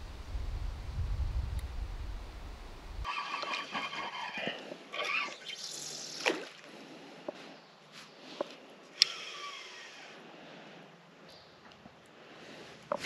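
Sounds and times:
river water trickling: 3.0s - 9.3s
fishing reel clicks: 9.0s - 9.9s.

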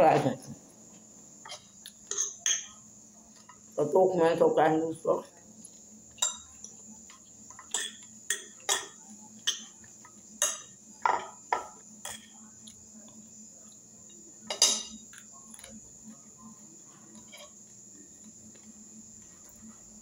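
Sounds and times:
fork clinking on glass bowl: 14.5s - 15.1s.

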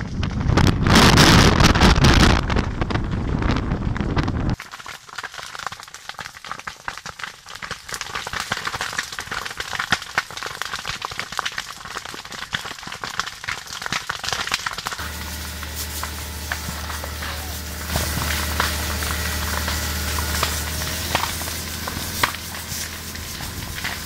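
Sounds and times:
fire crackling and popping: 0.0s - 24.0s
steady low hum: 15.0s - 24.0s.

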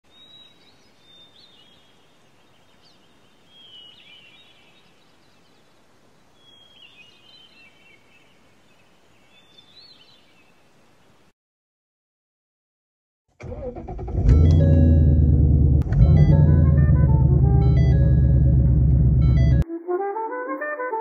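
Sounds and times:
steady outdoor hiss: 0.1s - 11.3s.

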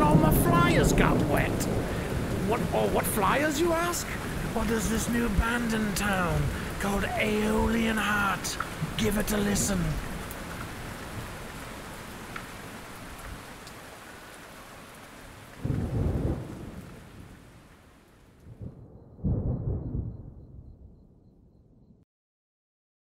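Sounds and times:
thunder rolling: 0.0s - 10.2s, 15.6s - 17.4s, 18.5s - 21.4s
steady rain falling: 0.0s - 20.1s.

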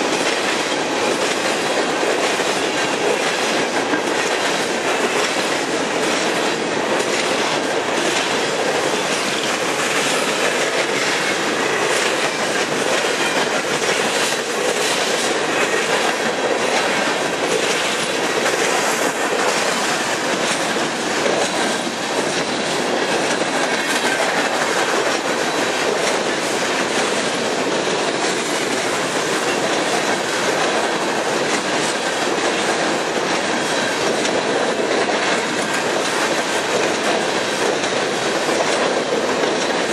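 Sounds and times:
freight train rushing past: 0.0s - 39.9s
wheels clacking over rail joints: 0.0s - 39.9s.

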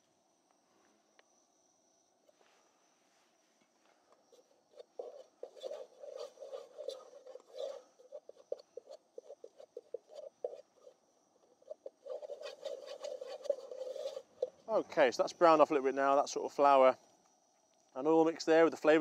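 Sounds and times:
spatula scraping a pot: 4.3s - 14.7s.

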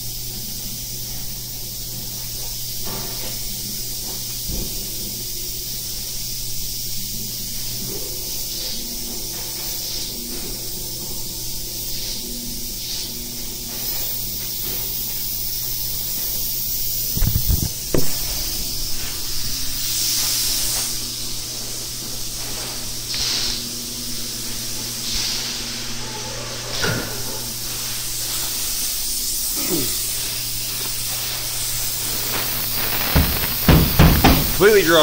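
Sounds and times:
spray gun hissing: 11.8s - 25.7s, 27.5s - 35.0s
loud thumps: 17.2s - 18.2s, 32.8s - 34.7s.

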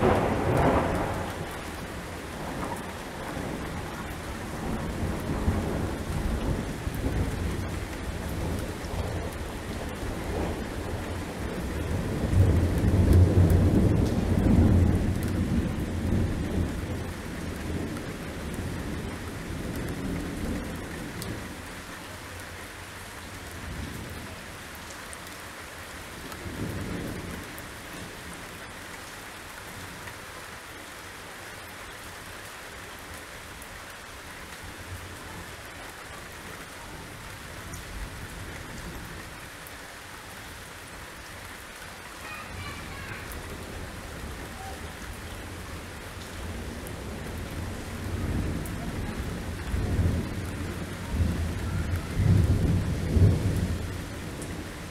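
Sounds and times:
thunder rumbling: 0.0s - 21.6s, 42.2s - 54.9s
torrential rain: 0.0s - 54.9s.

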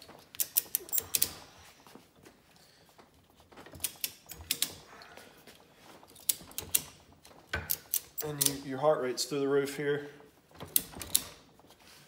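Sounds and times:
ratchet strap buckles clicking: 0.0s - 1.4s.

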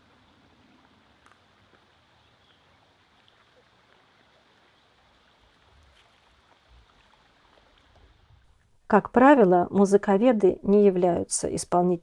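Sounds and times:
stream running over stones: 0.0s - 8.7s.

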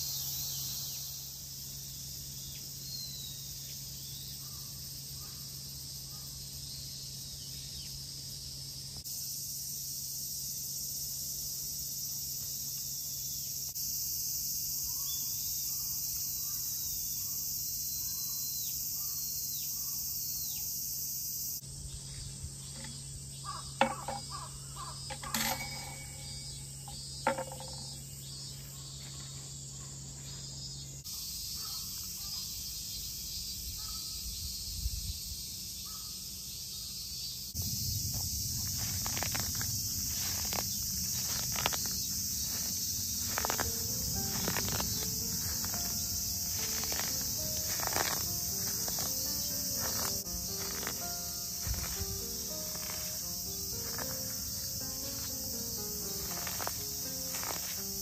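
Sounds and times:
insects chorus: 0.0s - 58.0s
low steady hum: 37.5s - 52.6s
bird chirps: 40.1s - 57.8s.

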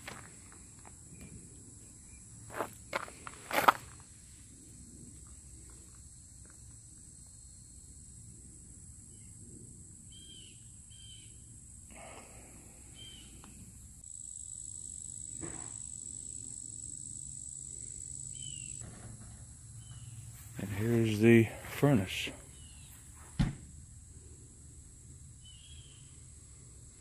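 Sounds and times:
insect buzzing: 10.0s - 18.8s
bird chirps: 10.1s - 11.5s, 13.0s - 13.4s, 18.3s - 18.8s, 25.4s - 26.2s.

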